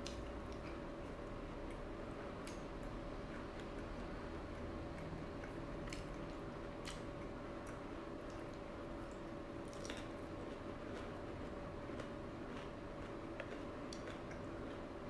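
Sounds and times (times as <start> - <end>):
person chewing: 3.3 - 14.9.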